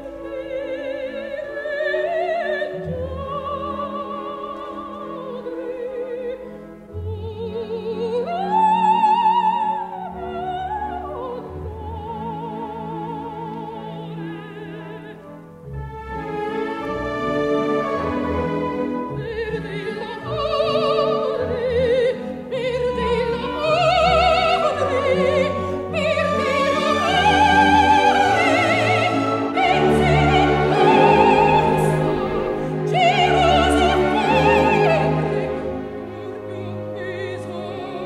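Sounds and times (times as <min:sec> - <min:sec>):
operatic singing: 0:00.0 - 0:38.0
orchestral chords: 0:13.8 - 0:38.0.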